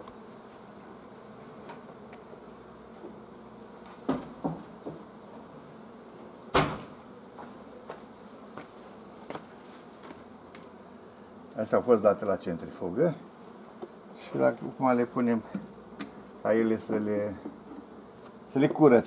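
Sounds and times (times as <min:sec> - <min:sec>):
bees buzzing: 0:00.0 - 0:19.0
wooden hive frames knocking: 0:03.8 - 0:05.2, 0:06.5 - 0:10.7, 0:15.3 - 0:18.9.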